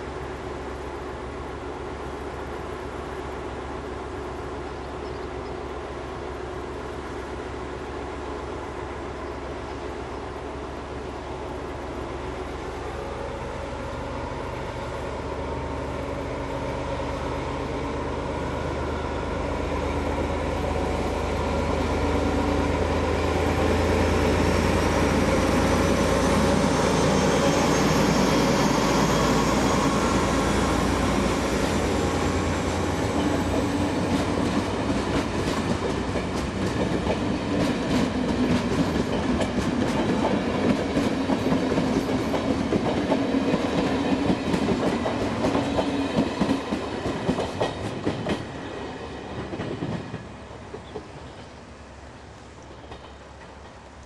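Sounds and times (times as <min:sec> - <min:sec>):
diesel locomotive engine: 0:00.0 - 0:54.0
train wheels clacking over rail joints: 0:33.0 - 0:48.6, 0:52.7 - 0:53.8.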